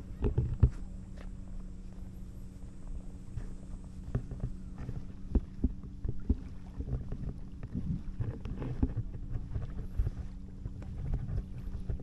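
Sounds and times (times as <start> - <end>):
boat engine hum: 0.0 - 12.0
water lapping at a pier: 0.0 - 12.0
small knocks and splashes: 4.0 - 12.0.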